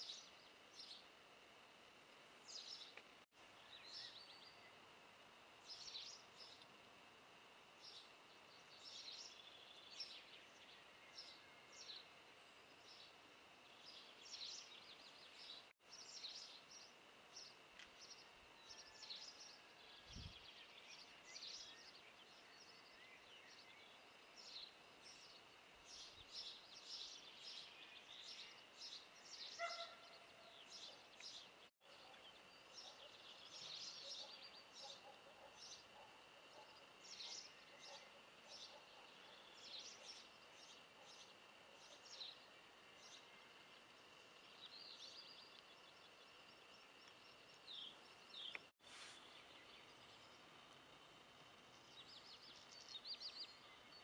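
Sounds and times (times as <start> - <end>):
small birds chirping: 0.0 - 1.7, 2.4 - 4.9, 5.6 - 6.8, 7.6 - 54.0
faint high hiss: 37.0 - 54.0.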